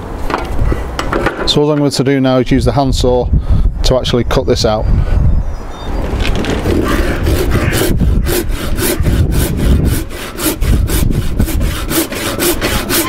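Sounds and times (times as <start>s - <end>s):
handsaw rasping through wood: 6.7s - 13.0s.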